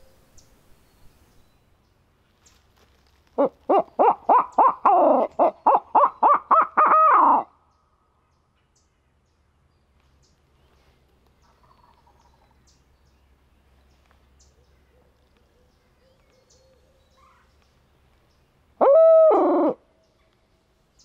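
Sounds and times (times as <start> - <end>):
owl hooter call: 3.4 - 7.5, 18.8 - 19.8.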